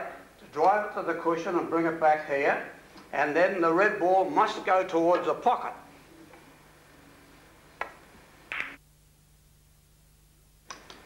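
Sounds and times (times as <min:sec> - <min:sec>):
billiard balls clicking: 0:07.8 - 0:08.8.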